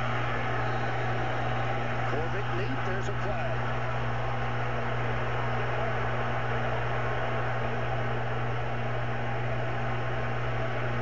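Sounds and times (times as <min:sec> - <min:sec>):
stadium crowd noise: 0:00.0 - 0:11.0.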